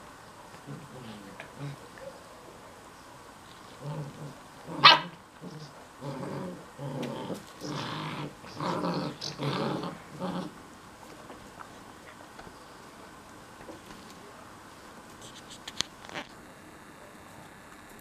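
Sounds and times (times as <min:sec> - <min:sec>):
puppies growling: 0:00.6 - 0:02.1, 0:03.7 - 0:10.8
puppy barking: 0:04.8 - 0:05.2.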